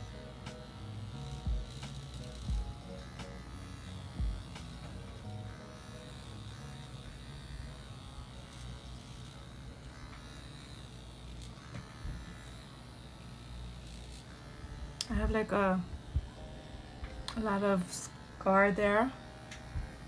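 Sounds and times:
microneedling pen buzzing: 0:00.0 - 0:20.0.

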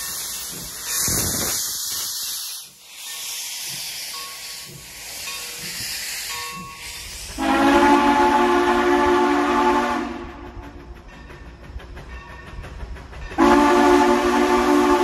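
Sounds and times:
steam locomotive hissing: 0:00.0 - 0:15.0
steam whistle blowing: 0:07.4 - 0:10.6, 0:13.4 - 0:15.0.

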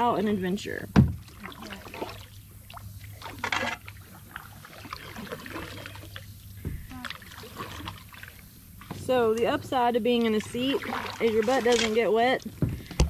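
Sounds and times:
paddle dipping and dripping: 0:00.0 - 0:13.0
knocks against plastic hull: 0:00.9 - 0:01.2, 0:12.6 - 0:13.0
paddle splash: 0:00.9 - 0:13.0.

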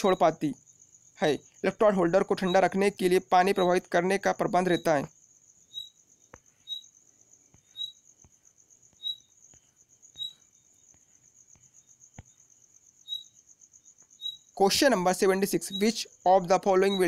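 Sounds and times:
insect chirping trill: 0:00.0 - 0:17.0.

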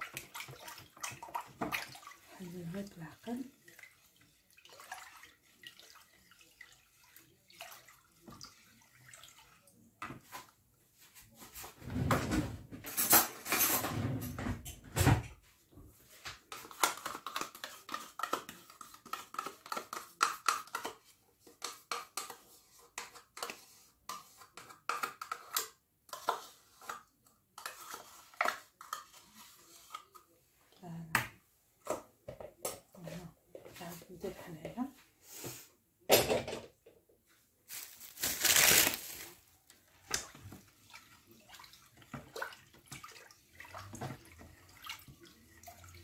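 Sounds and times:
spoon stirring liquid in bowl: 0:00.0 - 0:11.8, 0:16.0 - 0:34.1, 0:39.7 - 0:46.0.

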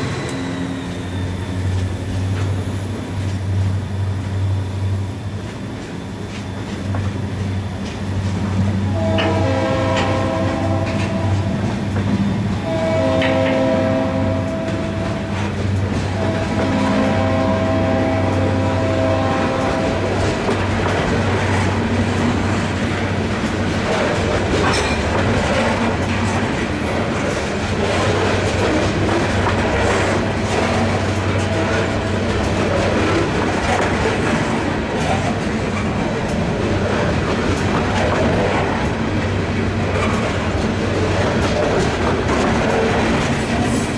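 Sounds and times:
train wheels clacking on rails: 0:05.3 - 0:43.9
train horn blasts: 0:08.9 - 0:11.6, 0:12.6 - 0:20.2, 0:30.5 - 0:32.3.

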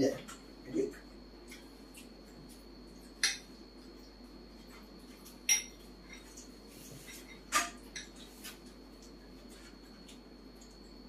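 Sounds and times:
spoon clinking against bowl: 0:05.5 - 0:06.2.

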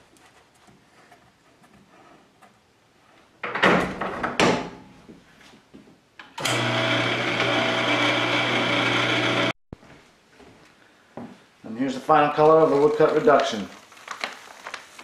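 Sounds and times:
rustles: 0:12.4 - 0:15.0.

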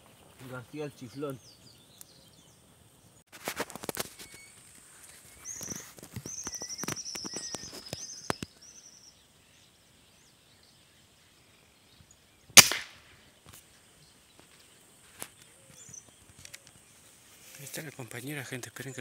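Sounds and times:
air rifle shot: 0:12.6 - 0:13.2
light clicks and rustles: 0:14.4 - 0:18.9.

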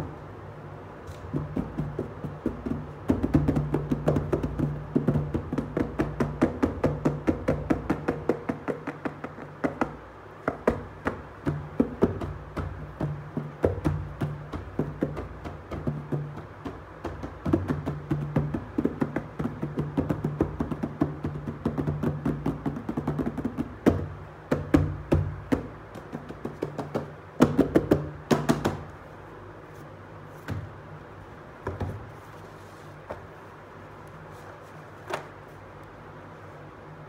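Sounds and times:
fingers tapping on cardboard box: 0:01.1 - 0:28.9.

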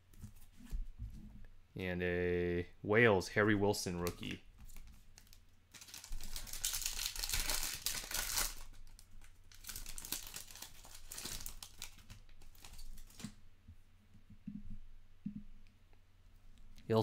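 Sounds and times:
foil wrapper crinkling and tearing: 0:04.2 - 0:13.3.

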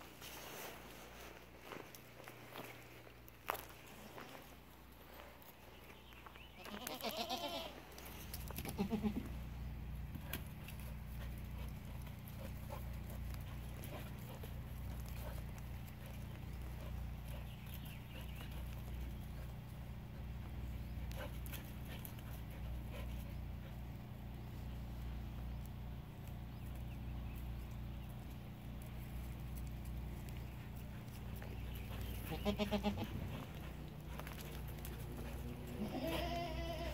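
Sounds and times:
goat bleating: 0:06.6 - 0:07.9, 0:08.5 - 0:09.5, 0:32.2 - 0:33.6, 0:35.6 - 0:36.9
low hum: 0:07.8 - 0:36.9.

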